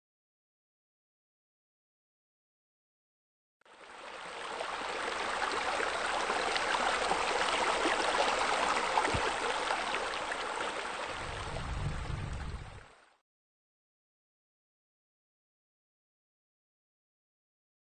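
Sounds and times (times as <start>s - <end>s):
water pouring into a pool: 3.7s - 13.2s
low rumble: 11.2s - 12.8s.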